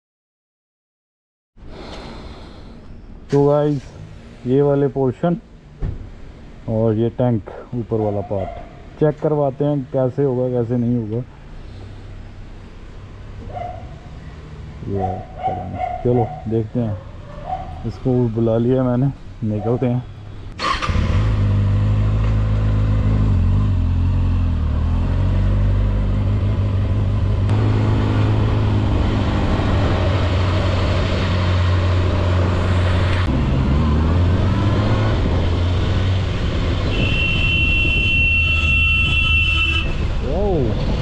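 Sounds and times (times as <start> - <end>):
road noise: 1.6 - 41.0
vehicle horn: 36.8 - 40.1.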